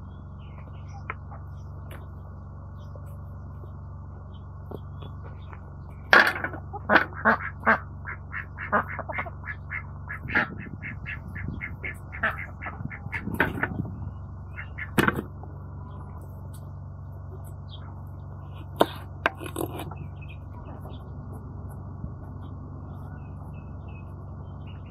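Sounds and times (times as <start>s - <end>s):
ducks quacking: 6.4s - 13.8s, 14.5s - 15.3s.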